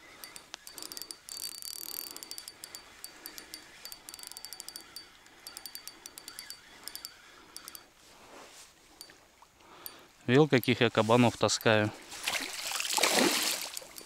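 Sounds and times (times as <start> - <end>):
fishing reel drag clicking: 0.0 - 7.9, 10.6 - 11.8, 13.6 - 14.0.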